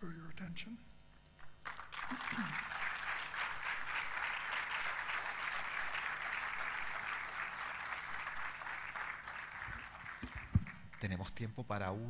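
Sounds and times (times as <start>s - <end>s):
audience applauding: 1.6s - 11.2s.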